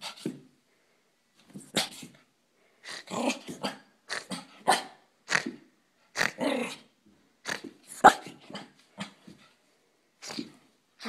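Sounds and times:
dog growling and barking: 0:02.8 - 0:09.2.

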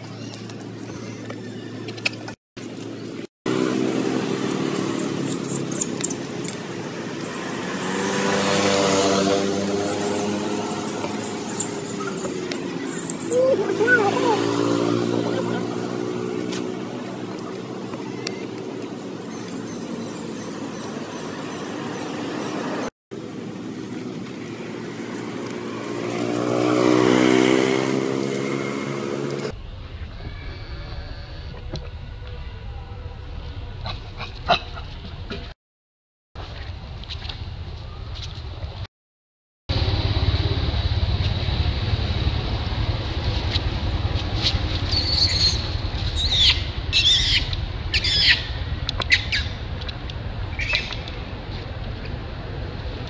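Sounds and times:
vehicle engine passing by: 0:03.5 - 0:34.1, 0:39.7 - 0:53.0
high-pitched squeaks: 0:04.7 - 0:06.6, 0:08.6 - 0:14.5.

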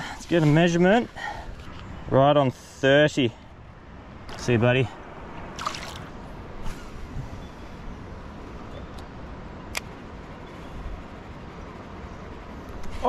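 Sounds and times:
steady outdoor hiss: 0:00.0 - 0:13.0
river water splashing: 0:05.4 - 0:06.4.

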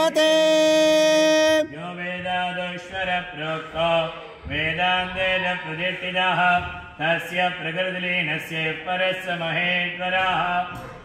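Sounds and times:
man chanting: 0:00.0 - 0:10.9.

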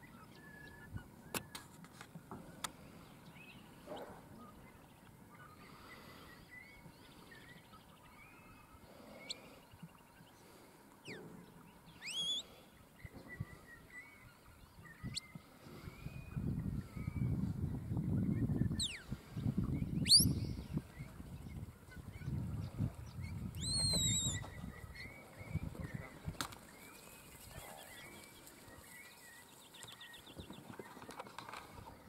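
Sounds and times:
bird chirps: 0:11.0 - 0:31.2
rising warbling bird call: 0:12.0 - 0:12.5, 0:20.0 - 0:20.6, 0:23.6 - 0:25.2.

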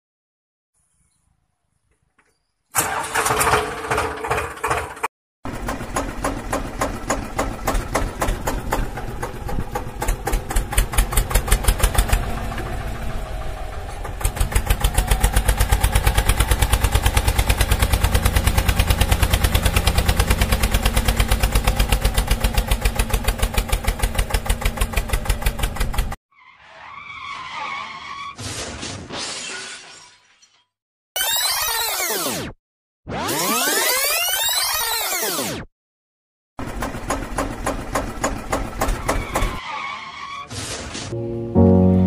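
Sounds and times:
tractor engine chugging: 0:02.8 - 0:26.2.

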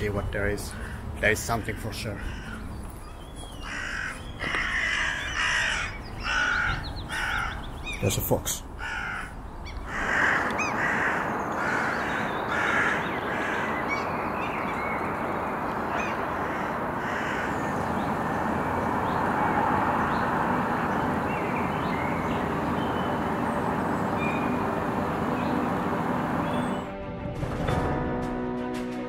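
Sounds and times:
birds giving harsh alarm calls: 0:00.7 - 0:26.9
steady rushing noise: 0:08.7 - 0:27.7.

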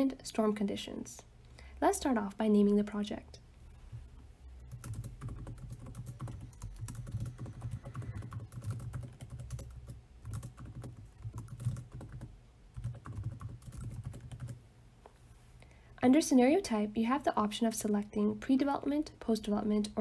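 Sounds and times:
typing on computer keyboard: 0:04.7 - 0:14.6.

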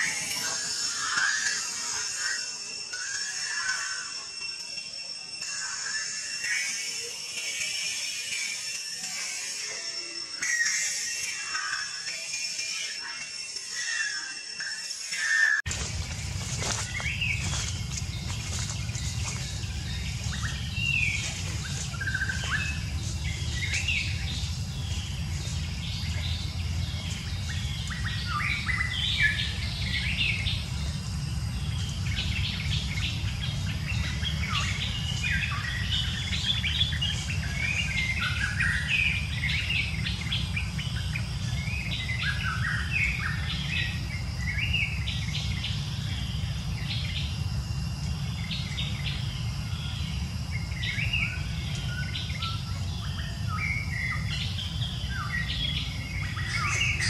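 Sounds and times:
small birds chirping: 0:00.0 - 0:57.0
steady low rumble: 0:15.7 - 0:57.0.

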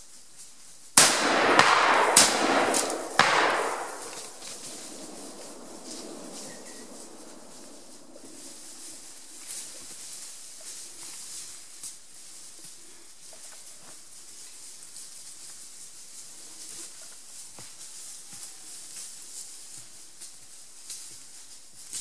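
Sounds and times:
rustles and clicks in leaf litter: 0:00.0 - 0:01.0, 0:03.8 - 0:22.0
steady high hiss: 0:00.0 - 0:12.6.

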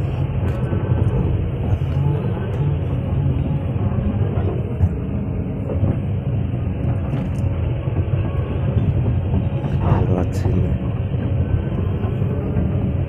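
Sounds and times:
excavator diesel engine rumbling: 0:00.0 - 0:13.0.

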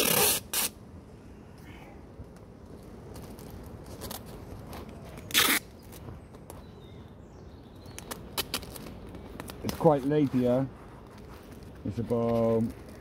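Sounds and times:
packing tape ripping: 0:00.0 - 0:00.8, 0:05.2 - 0:05.6.

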